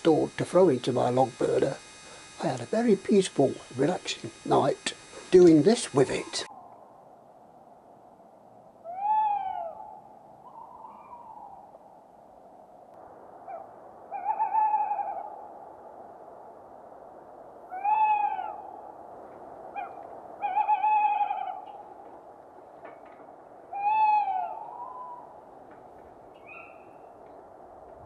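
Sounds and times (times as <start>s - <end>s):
owl hooting: 0.0s - 6.8s, 8.8s - 11.8s, 13.3s - 15.7s, 17.6s - 22.4s, 23.6s - 25.7s, 26.3s - 27.6s
faint background hiss: 0.0s - 8.8s.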